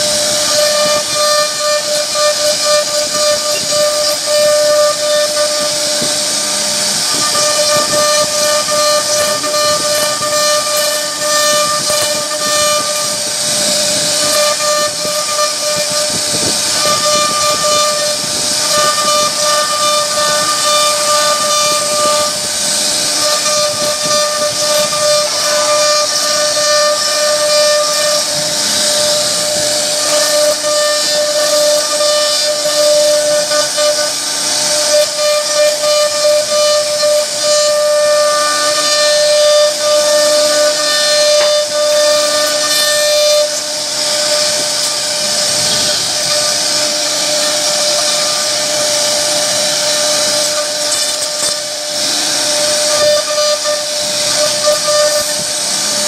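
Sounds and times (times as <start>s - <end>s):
hiss of cutting wood: 0.0s - 56.0s
router spindle whine: 0.0s - 56.0s.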